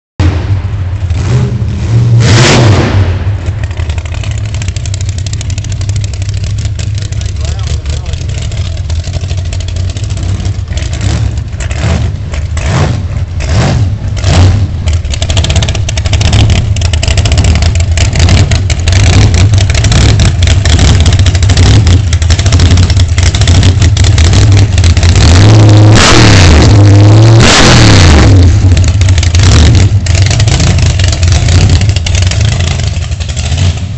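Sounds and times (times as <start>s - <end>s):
hot rod engine idling and revving: 0.2s - 33.9s.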